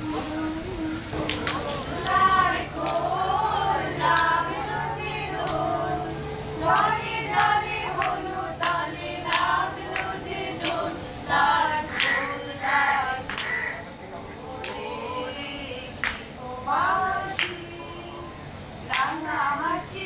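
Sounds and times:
women singing together: 1.1 - 20.0
hands clapping: 1.2 - 3.1, 3.9 - 4.4, 5.4 - 5.6, 6.7 - 10.8, 13.3 - 13.6, 14.6 - 14.9, 16.0 - 16.3, 17.4 - 17.6, 18.9 - 19.2.

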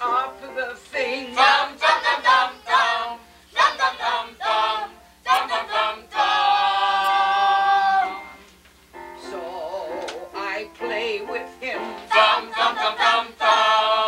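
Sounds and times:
group of voices singing: 0.0 - 8.4, 9.3 - 14.0.

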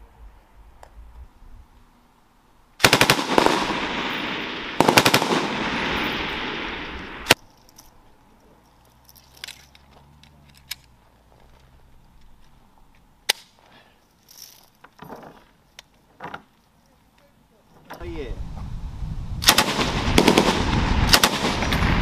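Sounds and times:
machine-gun fire bursts: 2.8 - 6.7, 19.4 - 22.0
rolling echo: 2.8 - 7.4, 19.4 - 22.0.

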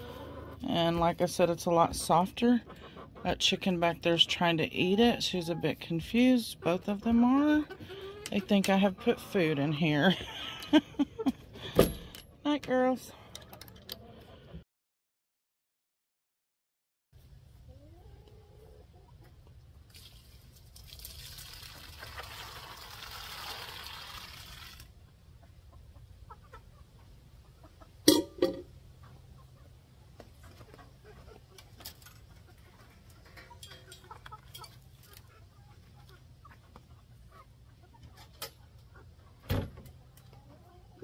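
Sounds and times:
hens clucking: 0.0 - 11.6, 13.4 - 14.6, 17.6 - 19.7, 25.0 - 41.0
chickpeas pouring onto ground: 19.9 - 24.9.

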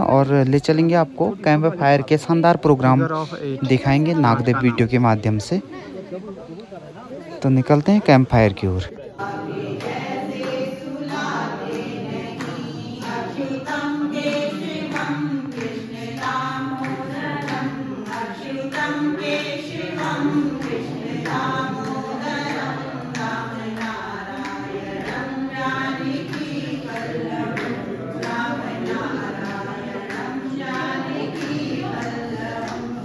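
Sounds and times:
women singing unaccompanied: 9.0 - 33.0
hand claps: 9.2 - 33.0.

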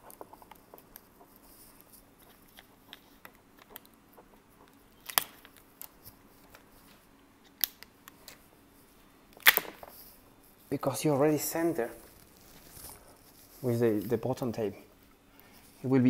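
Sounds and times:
sticker peeling clicks and crackles: 0.0 - 6.6, 7.4 - 8.4, 9.3 - 9.9.

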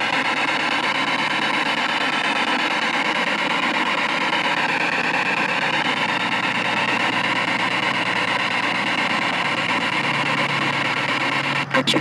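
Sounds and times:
radio static hiss: 0.0 - 12.0.

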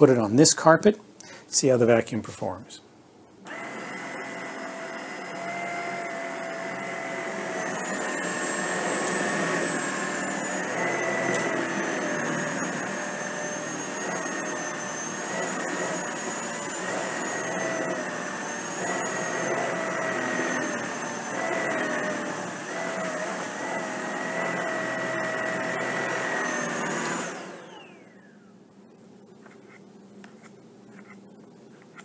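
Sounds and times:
vacuum cleaner whine: 3.4 - 28.6.

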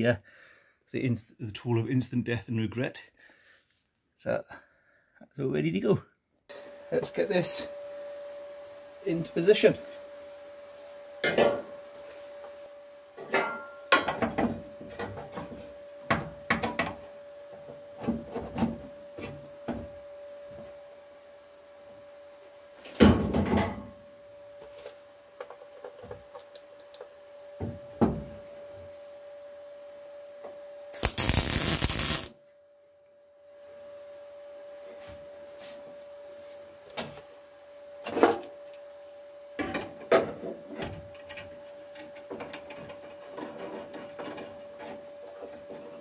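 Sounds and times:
steady hum: 6.5 - 39.6
welder tacking: 31.0 - 32.3.

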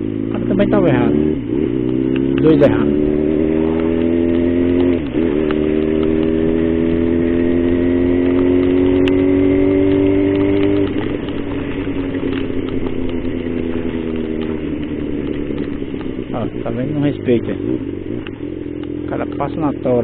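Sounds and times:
motorcycle engine accelerating: 0.0 - 20.0.

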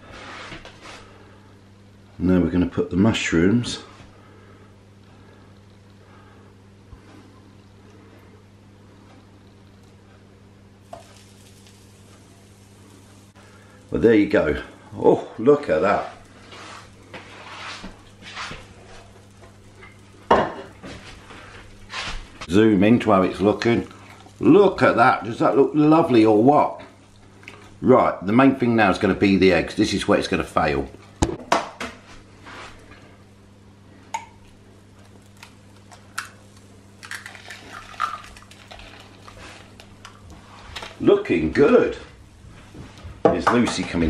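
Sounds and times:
low steady hum: 0.0 - 44.0
eggshell crackling: 5.0 - 27.8, 33.9 - 41.4.

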